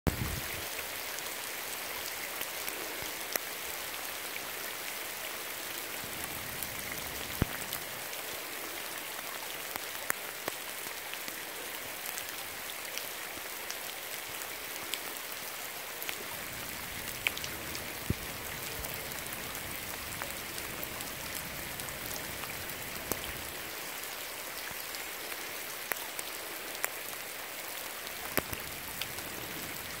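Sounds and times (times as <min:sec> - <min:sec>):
heavy rain on water: 0:00.1 - 0:30.0
single raindrop ticks: 0:28.2 - 0:29.2.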